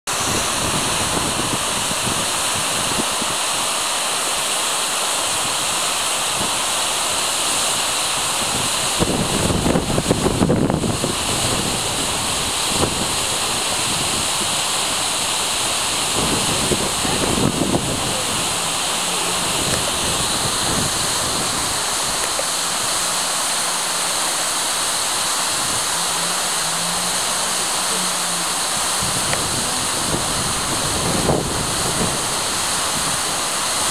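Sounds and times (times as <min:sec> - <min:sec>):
wind buffeting microphone: 0:00.1 - 0:03.4, 0:08.3 - 0:22.3, 0:28.7 - 0:33.9
waterfall roaring: 0:00.1 - 0:33.9.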